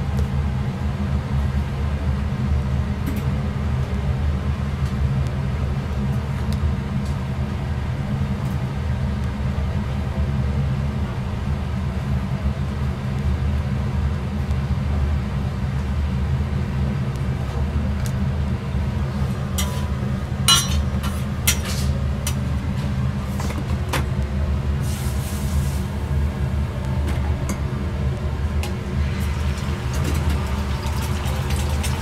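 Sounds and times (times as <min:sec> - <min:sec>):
low kitchen rumble: 0:14.3 - 0:32.0
metal spatula scraping griddle: 0:19.6 - 0:19.9, 0:20.6 - 0:22.0.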